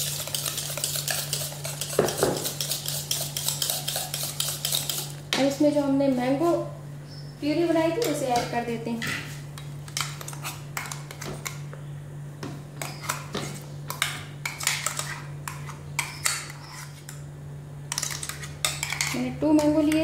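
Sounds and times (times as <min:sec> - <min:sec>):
spatula scraping plastic jar: 0:00.0 - 0:05.2, 0:14.4 - 0:17.2
steady low hum: 0:00.0 - 0:20.0.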